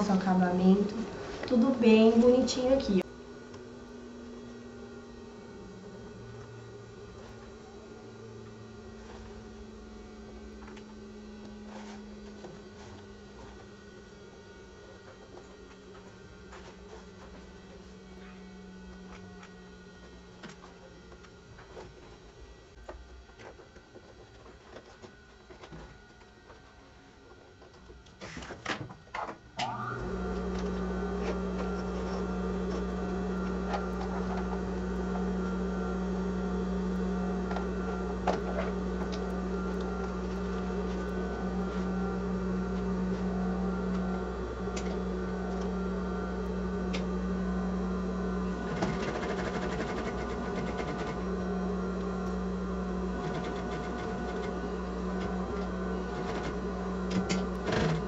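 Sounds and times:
sewing machine stitching: 48.6 - 51.4, 53.1 - 58.0.

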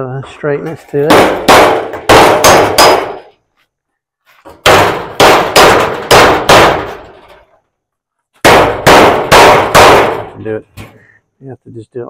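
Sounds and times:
hammer striking sheet metal: 1.0 - 3.3, 4.6 - 7.4, 8.4 - 10.4.

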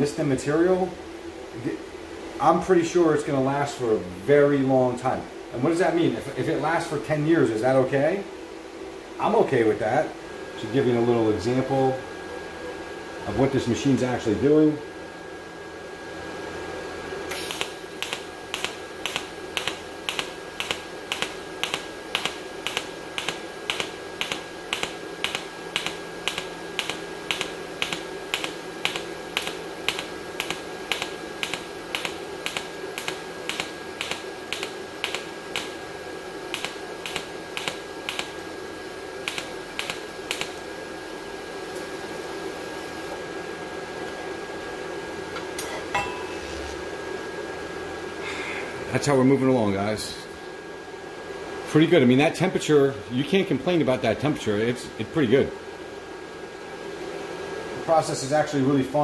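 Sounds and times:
welder arc snapping: 17.3 - 35.8, 36.5 - 38.5, 39.2 - 40.7.

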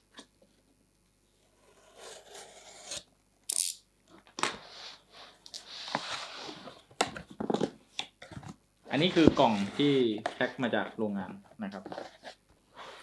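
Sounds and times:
tape tearing: 2.1 - 3.8
cardboard scraping and rustling: 8.9 - 10.5.

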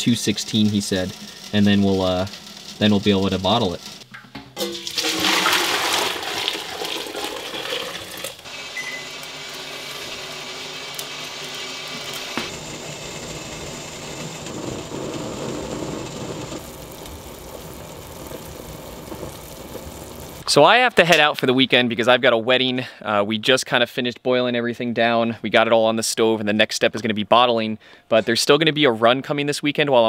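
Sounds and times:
rushing boiling liquid: 4.6 - 20.4.

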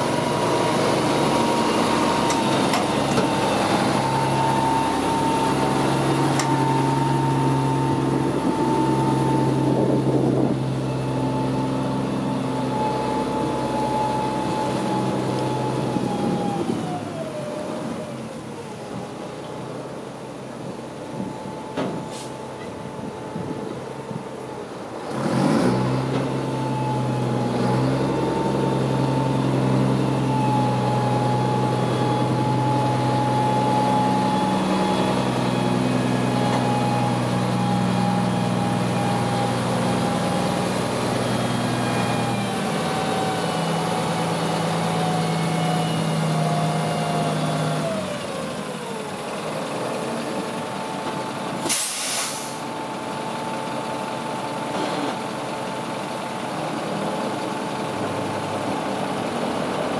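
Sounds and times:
diesel truck engine running: 0.0 - 59.9
air brakes hissing: 22.0 - 22.6, 51.6 - 52.7.

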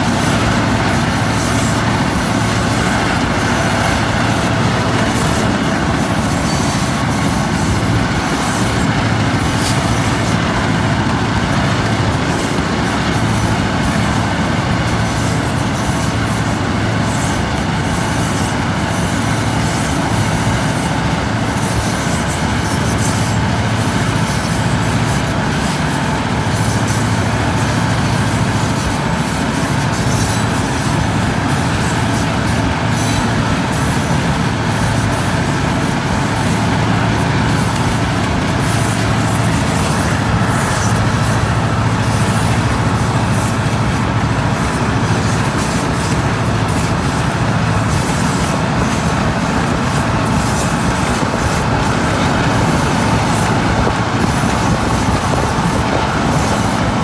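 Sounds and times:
diesel locomotives droning: 0.0 - 57.0
car road and wind noise: 19.9 - 57.0.

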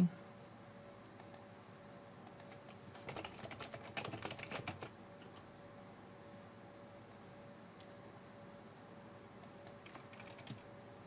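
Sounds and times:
typing on computer keyboard: 2.3 - 5.4, 9.7 - 10.6.

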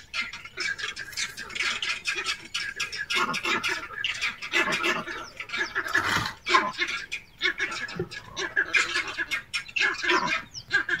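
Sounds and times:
harsh squawking calls: 0.0 - 11.0.

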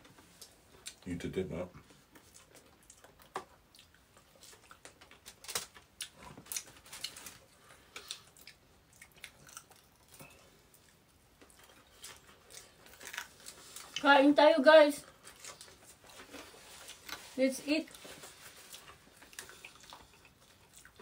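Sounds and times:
chewing and mouth noises: 1.9 - 14.1, 15.0 - 21.0
small clicks and crackles: 4.3 - 10.3.

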